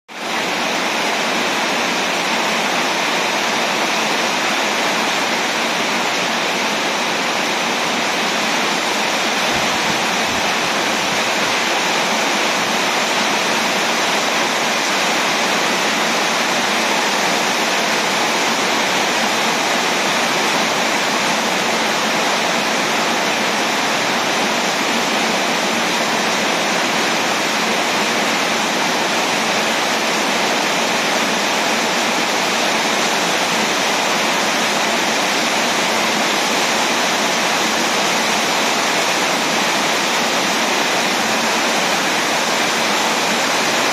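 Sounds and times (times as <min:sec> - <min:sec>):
heavy rain pouring: 0:00.1 - 0:43.9.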